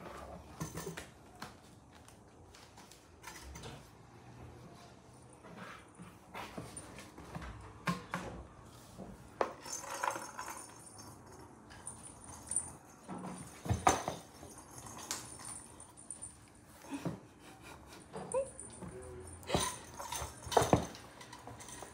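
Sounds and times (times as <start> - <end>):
small bells jingling: 9.6 - 16.9.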